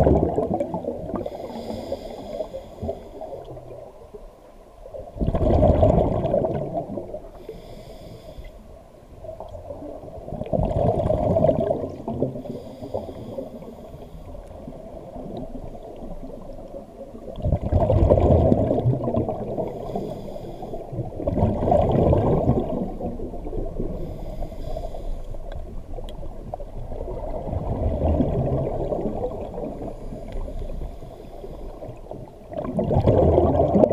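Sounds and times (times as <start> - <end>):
regulator exhaust bubbling underwater: 0.0 - 1.4, 5.0 - 7.3, 9.4 - 12.6, 17.2 - 19.7, 20.9 - 24.2, 25.6 - 30.5, 31.8 - 33.9
hiss of inhalation: 1.2 - 3.5, 7.3 - 8.6, 12.4 - 14.4, 19.7 - 20.9, 24.0 - 25.4.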